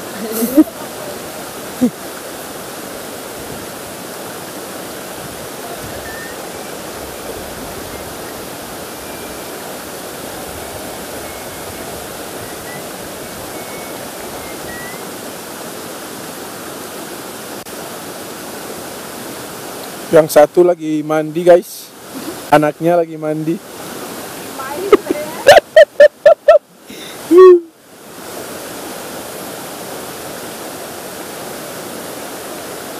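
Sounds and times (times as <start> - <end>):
stream flowing over rocks: 0.0 - 25.8, 26.6 - 32.9
faint high chirps: 5.9 - 6.4, 11.2 - 15.0.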